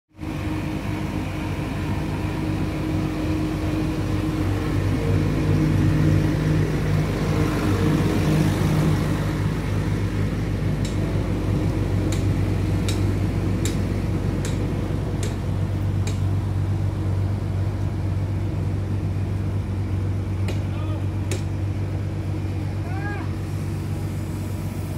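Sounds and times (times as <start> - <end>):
large engine running: 0.1 - 24.9
sharp clicks: 10.8 - 11.1, 12.1 - 13.8, 16.0 - 16.3.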